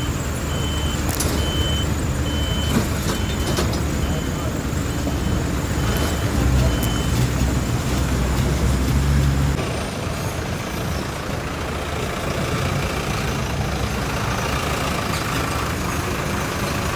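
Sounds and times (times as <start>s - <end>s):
heavy vehicle engine rumbling: 0.0s - 16.9s
traffic noise: 0.0s - 16.9s.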